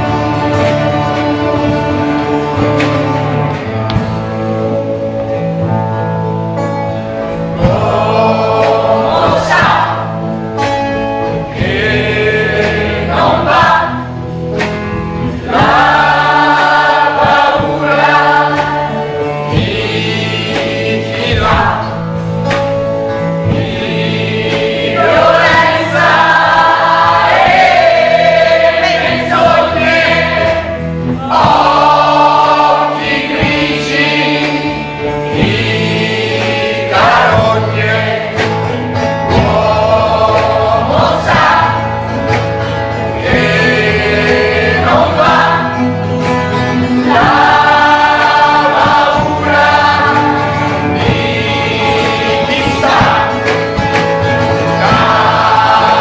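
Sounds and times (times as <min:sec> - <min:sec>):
mixed choir singing: 0:00.0 - 0:05.8, 0:07.2 - 0:56.0.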